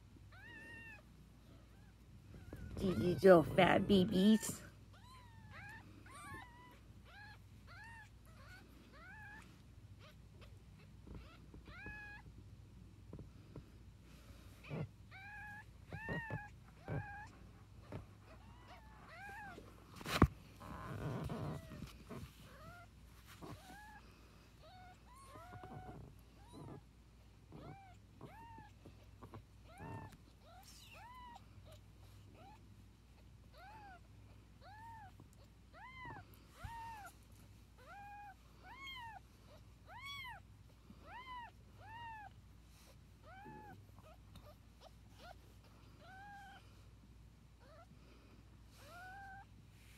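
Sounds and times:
rustling handling noise: 0:19.2 - 0:24.6.

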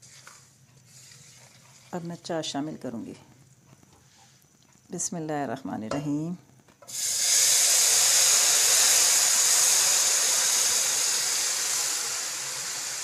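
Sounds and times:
syrup hissing in hot oil: 0:00.0 - 0:02.0, 0:06.9 - 0:13.0.

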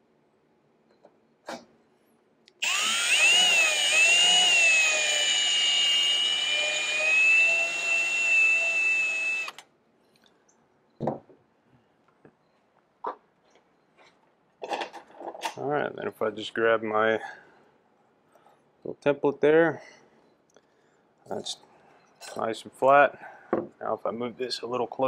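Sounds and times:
power drill whining: 0:02.6 - 0:09.6.

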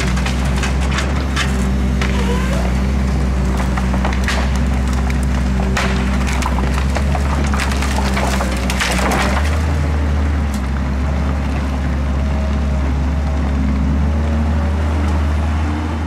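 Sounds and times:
wood cracking and snapping: 0:00.0 - 0:11.8
diesel engine running: 0:00.0 - 0:16.0.

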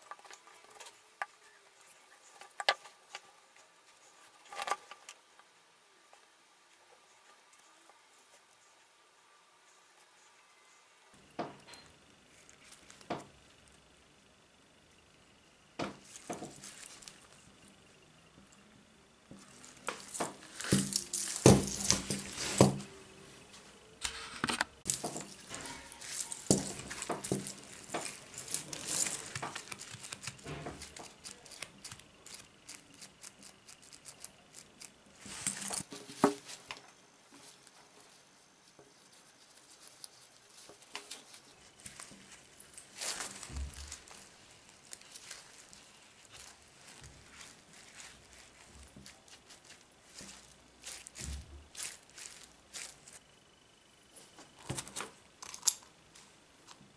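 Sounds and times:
chainmail rings clinking: 0:24.9 - 0:29.8.

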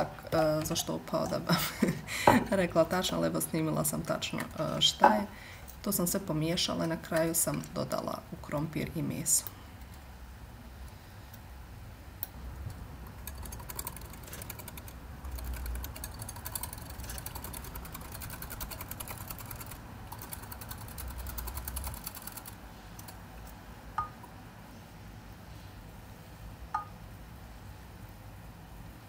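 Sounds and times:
glassy clink: 0:26.8 - 0:27.0.

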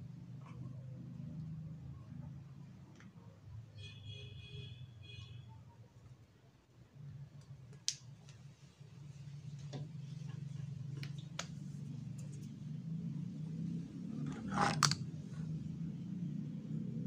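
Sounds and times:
plastic clatter: 0:14.3 - 0:15.0.

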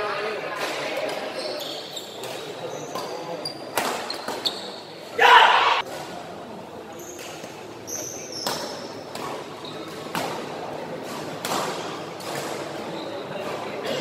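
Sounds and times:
shoes squeaking on court: 0:01.0 - 0:05.1, 0:07.0 - 0:14.0.

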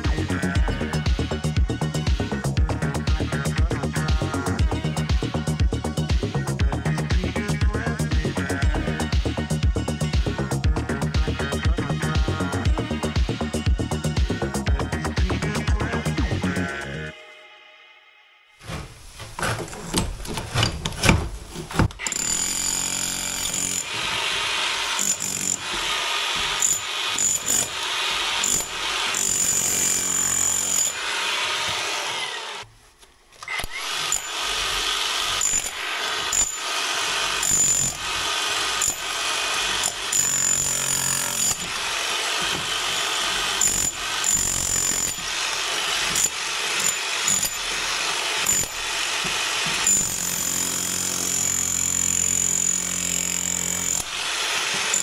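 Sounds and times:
electric hammer chiselling brickwork: 0:19.9 - 0:32.6, 0:33.4 - 0:55.0.

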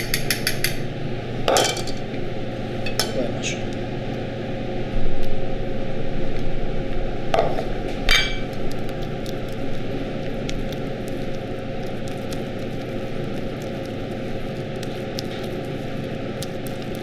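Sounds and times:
spatula folding cream in bowl: 0:08.6 - 0:17.0.

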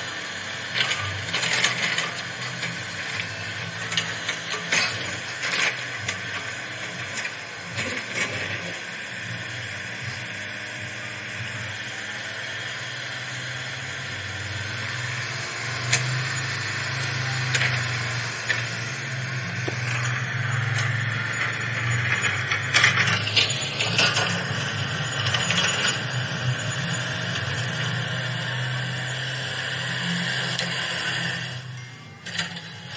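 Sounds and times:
toy motor humming: 0:11.2 - 0:32.9.

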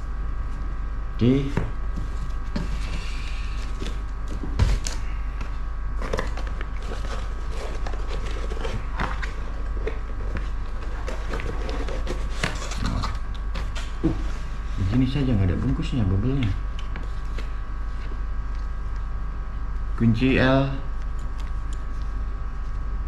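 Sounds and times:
faint hum: 0:00.0 - 0:23.0
cardboard scraping and rustling: 0:06.0 - 0:14.8.

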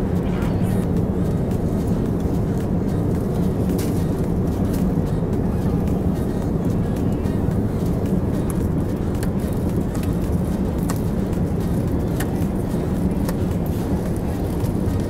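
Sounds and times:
airplane cabin roar: 0:00.0 - 0:15.0.

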